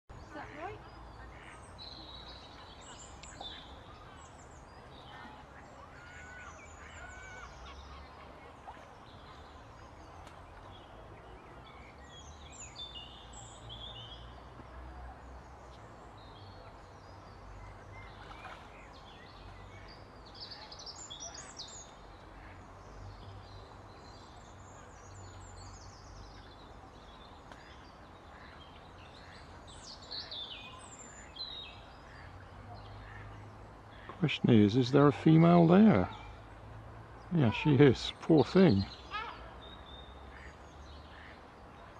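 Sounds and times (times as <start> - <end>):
small birds chirping: 0.1 - 14.4, 15.1 - 41.9
ducks splashing in water: 17.6 - 20.9.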